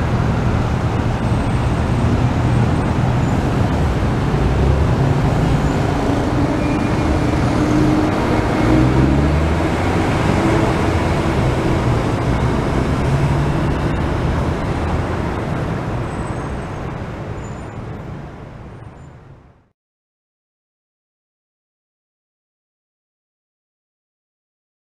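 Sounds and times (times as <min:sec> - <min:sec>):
monorail train passing: 0:00.0 - 0:19.4
city street traffic: 0:00.0 - 0:19.7.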